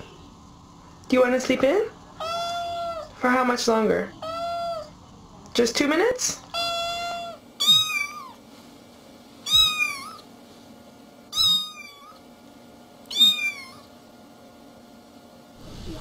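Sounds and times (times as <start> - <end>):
cat meowing: 2.2 - 3.1, 4.2 - 5.0, 6.5 - 8.4, 9.5 - 10.2, 11.3 - 12.2, 13.1 - 13.9.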